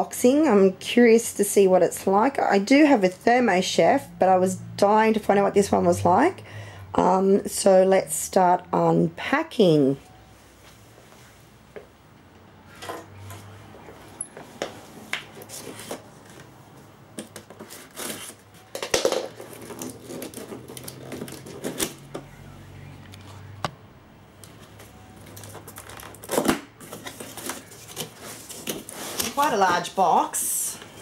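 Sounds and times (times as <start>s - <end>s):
cardboard box being opened: 19.3s - 22.2s, 25.3s - 29.9s.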